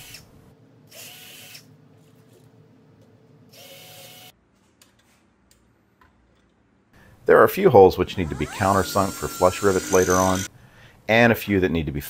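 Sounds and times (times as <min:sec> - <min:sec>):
cordless drill drilling metal: 0:08.1 - 0:10.5.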